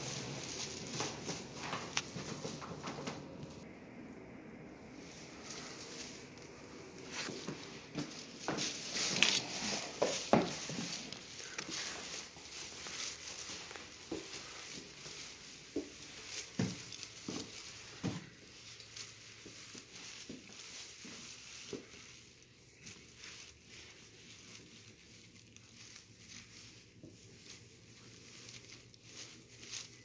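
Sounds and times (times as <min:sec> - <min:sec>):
footsteps on hard floor: 0:00.0 - 0:03.7, 0:05.3 - 0:22.2.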